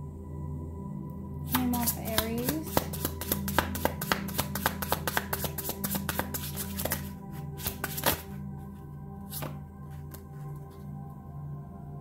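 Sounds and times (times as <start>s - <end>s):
soft background music: 0.0s - 12.0s
cards being shuffled: 1.5s - 8.4s, 9.3s - 10.8s.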